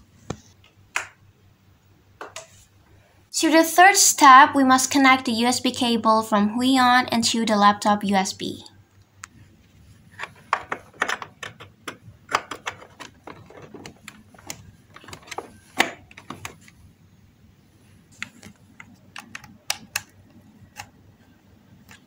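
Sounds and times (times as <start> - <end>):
plastic clicks and taps: 10.2 - 16.8, 18.2 - 21.0.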